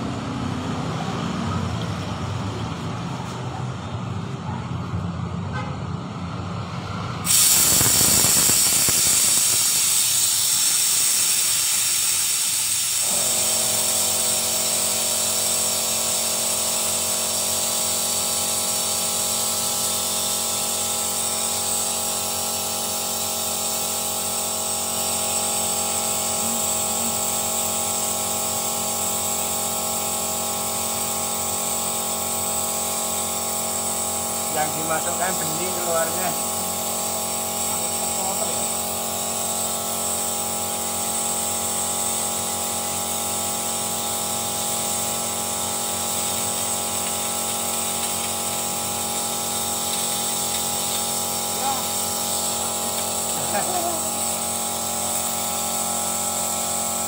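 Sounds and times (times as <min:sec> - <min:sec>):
compressed air hissing: 0:07.2 - 0:57.0.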